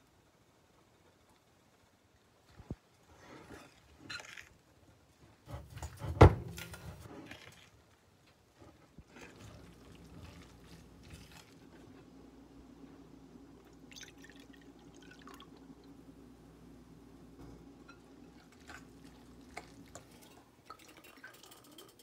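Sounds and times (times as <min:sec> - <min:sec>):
batter squelching: 0:08.8 - 0:12.2.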